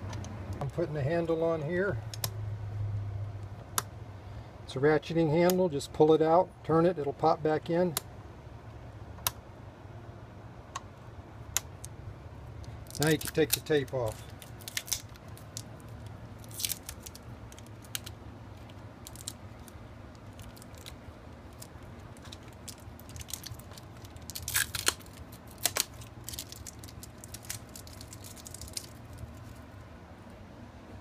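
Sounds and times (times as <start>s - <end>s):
low steady hum: 0.0s - 31.0s
adhesive tape peeling: 12.6s - 29.6s.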